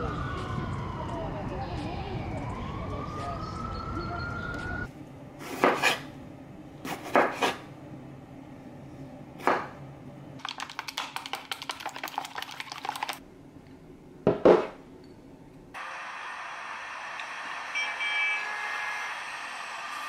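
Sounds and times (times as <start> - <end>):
eggs beaten in glass cup: 10.4 - 13.2.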